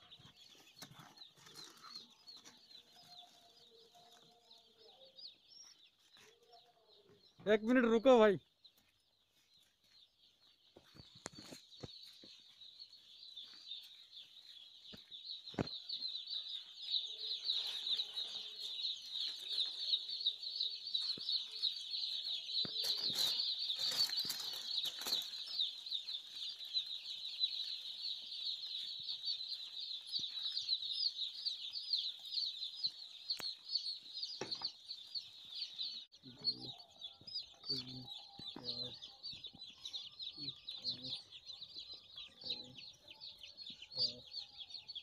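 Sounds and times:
chicks peeping: 0.0s - 45.0s
rustling: 22.8s - 30.8s.

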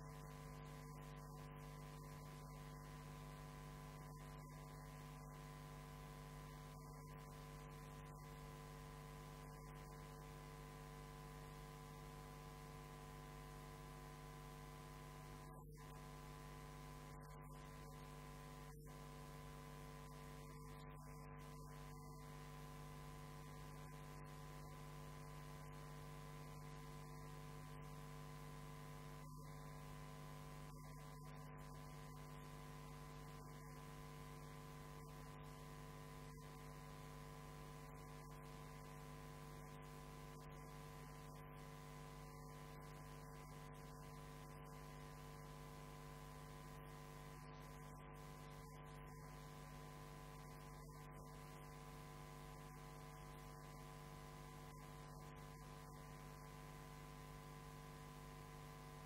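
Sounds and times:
electrical hum: 0.0s - 59.0s.

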